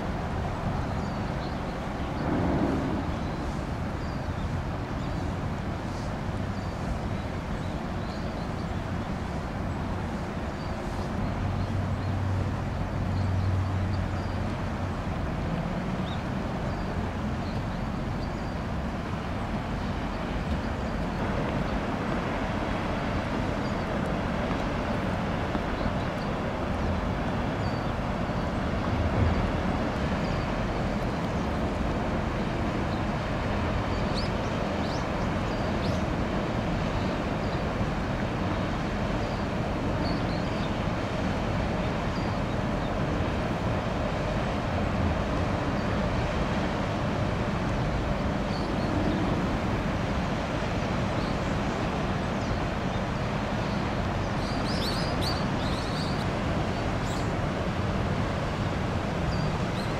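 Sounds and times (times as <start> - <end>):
ship diesel engine rumble: 0.0 - 7.2
water rushing: 0.0 - 59.9
wind: 0.0 - 59.9.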